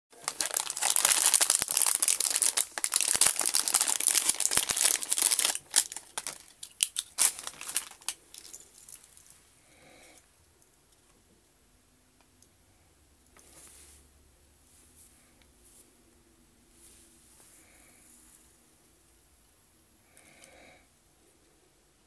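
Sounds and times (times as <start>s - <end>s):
plastic packaging crinkling: 0.1s - 9.3s.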